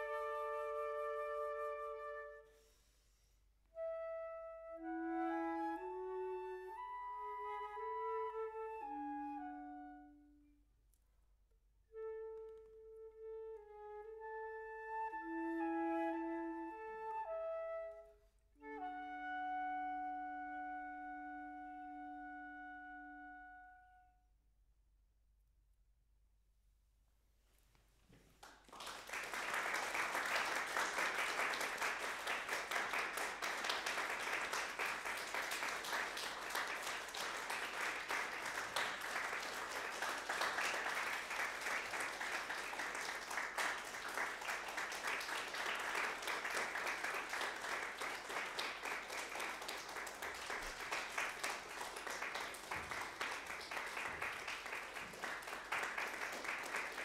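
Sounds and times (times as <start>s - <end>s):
audience applause: 28.4s - 57.0s.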